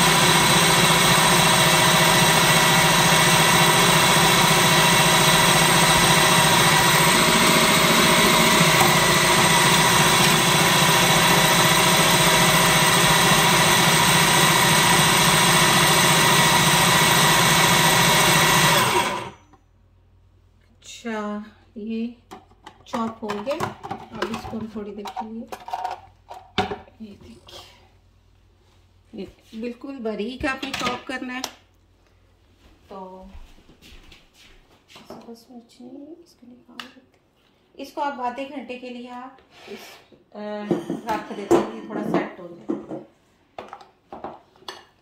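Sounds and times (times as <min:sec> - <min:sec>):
food processor running: 0:00.0 - 0:19.4.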